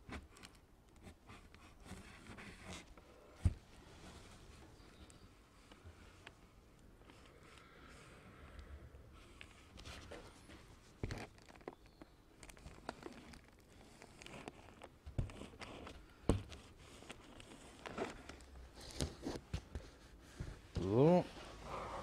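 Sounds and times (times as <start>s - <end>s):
film rustling and crinkling: 9.3s - 21.6s.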